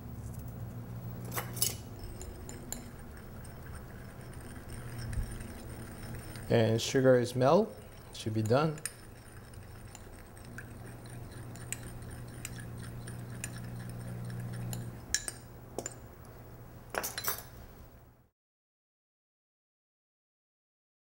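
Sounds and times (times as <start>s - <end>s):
low steady hum: 0.0s - 18.3s
spoon ticking against glass bowl: 2.0s - 16.0s.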